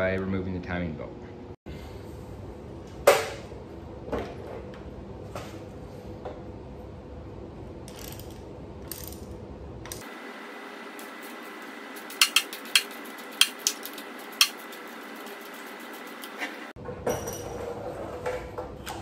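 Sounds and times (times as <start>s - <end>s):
ratchet wrench clicking: 7.9s - 9.3s, 12.1s - 14.6s.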